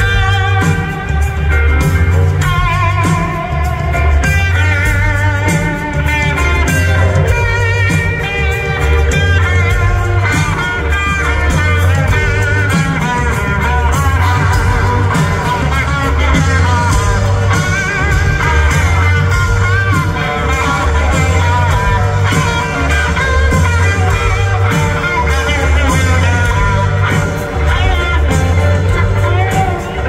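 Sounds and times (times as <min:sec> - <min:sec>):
blues-rock band playing: 0:00.0 - 0:30.0
electric guitar lead: 0:00.0 - 0:30.0.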